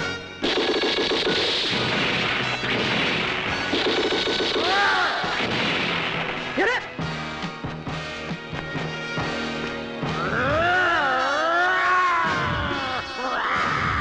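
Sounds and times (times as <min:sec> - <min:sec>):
background music: 0:00.0 - 0:14.0
loud explosion blast: 0:01.5 - 0:06.8
rumbling crackling noise: 0:01.6 - 0:08.0.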